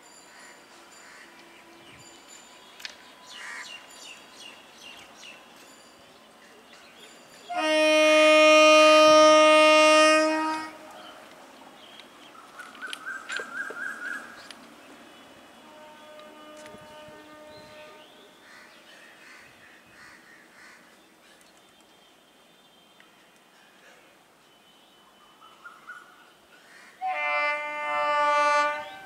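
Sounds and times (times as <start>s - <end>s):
train horn blast: 7.5s - 11.2s, 15.6s - 18.4s, 27.0s - 29.0s.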